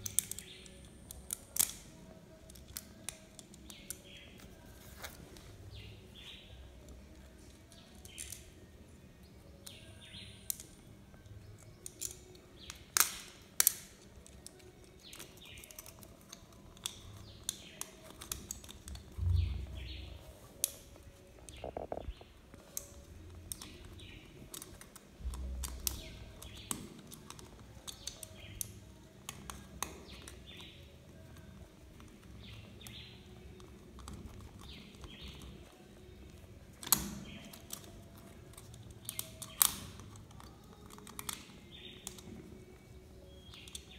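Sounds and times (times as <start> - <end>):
birds chirping: 5.6 - 12.9, 14.6 - 20.4, 21.2 - 29.0, 29.9 - 43.9.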